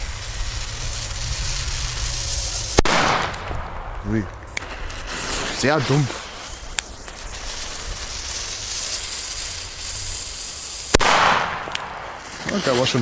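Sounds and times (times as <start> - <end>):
firecracker bang: 0.0 - 13.0
fuse hissing: 0.0 - 13.0.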